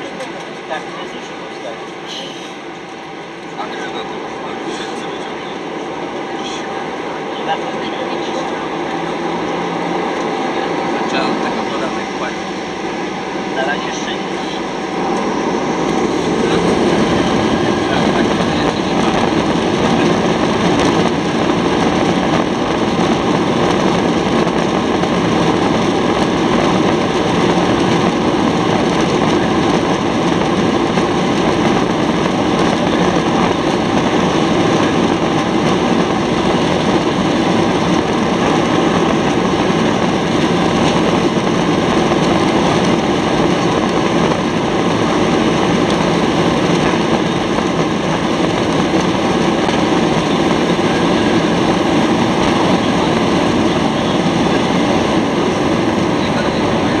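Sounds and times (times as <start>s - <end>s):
jet engines at high thrust: 0.0s - 57.0s.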